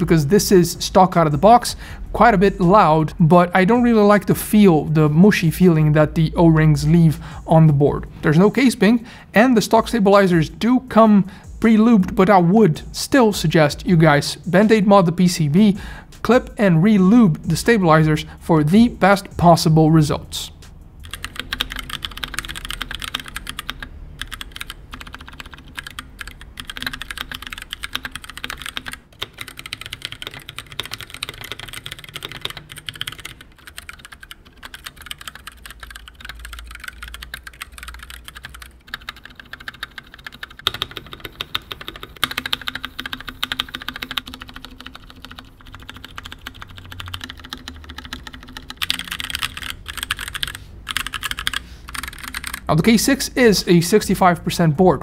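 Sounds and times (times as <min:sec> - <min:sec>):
fast mechanical keyboard typing: 0:00.0 - 0:07.2, 0:21.0 - 0:53.2.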